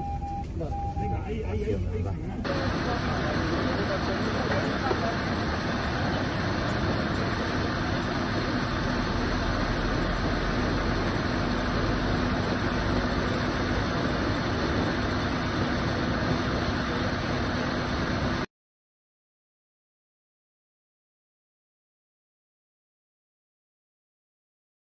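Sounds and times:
small petrol engine running: 2.4 - 18.4.

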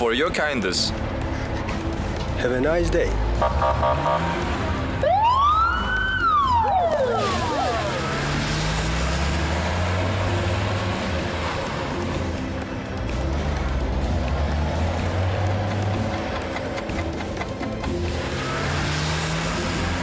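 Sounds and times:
car engine and road noise: 0.0 - 20.0
police siren wail: 3.4 - 9.6.

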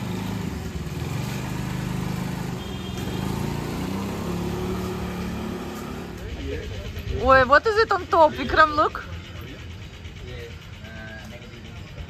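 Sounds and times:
scooter engine running: 0.0 - 12.0.

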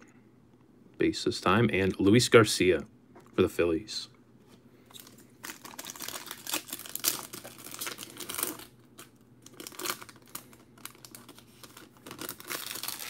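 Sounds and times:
foil wrapper crinkling and tearing: 4.9 - 13.0.

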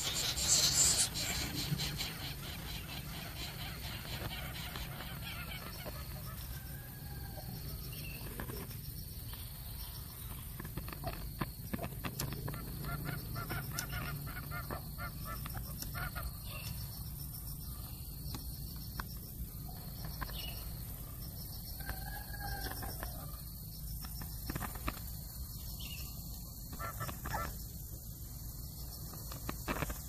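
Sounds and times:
coucal calling: 0.0 - 6.8, 12.1 - 16.9, 25.7 - 27.7.

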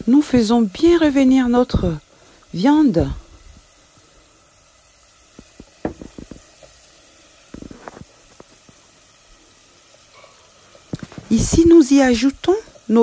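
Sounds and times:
meat sizzling in hot oil: 0.0 - 13.0
sharp crackles: 10.7 - 12.6.

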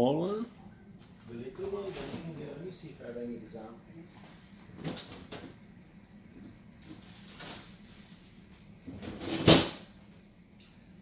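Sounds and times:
door shutting with loud knock: 9.2 - 9.8.

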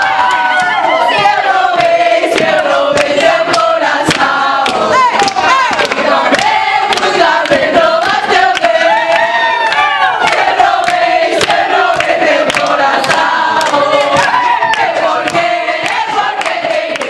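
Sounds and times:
high whoops: 0.0 - 1.2, 8.9 - 10.3, 14.2 - 15.0
crowd singing and shouting: 0.0 - 17.0
hand claps: 1.8 - 17.0.

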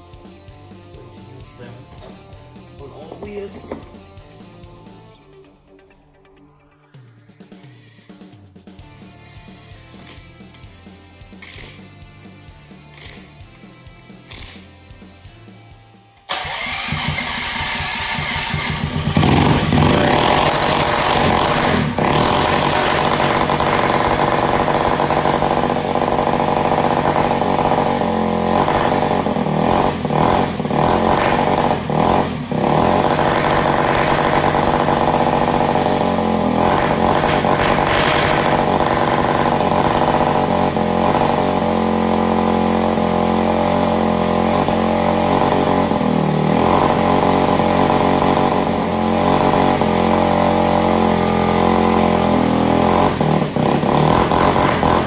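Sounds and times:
rc car engine at high revs: 16.3 - 55.0.

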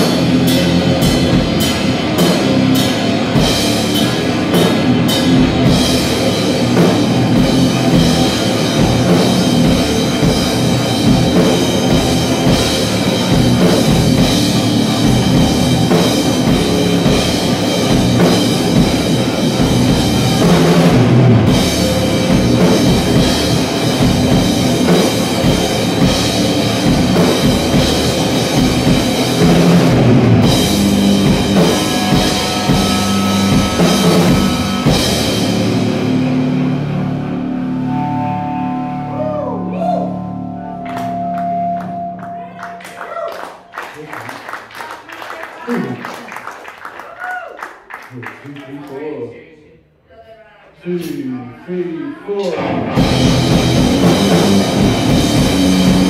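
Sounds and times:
drum kit: 0.0 - 38.1, 52.5 - 56.0
electric guitar riff: 0.0 - 43.2, 52.5 - 56.0.

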